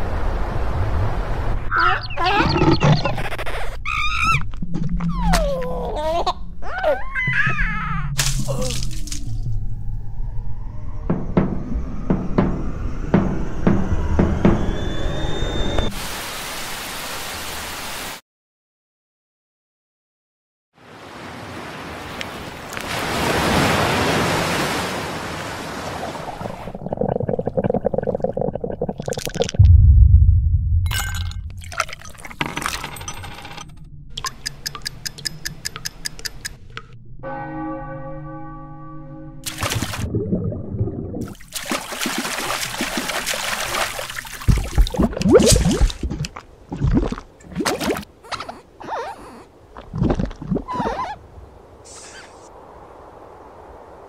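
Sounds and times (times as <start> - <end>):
rough sea waves rushing: 0.0 - 1.8, 20.8 - 27.0
baby giggling and cooing: 5.2 - 8.0.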